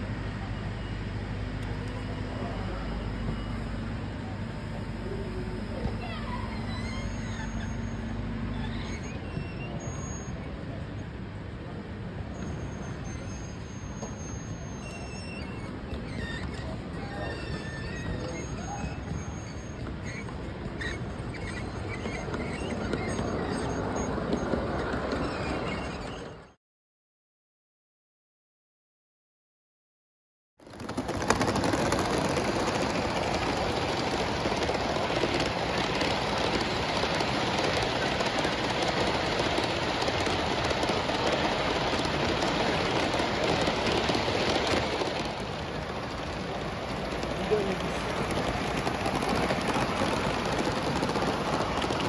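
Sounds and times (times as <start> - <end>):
model freight cars rolling on track: 0.1 - 26.6, 30.6 - 52.0
model train wheels clattering on rails: 30.6 - 52.0.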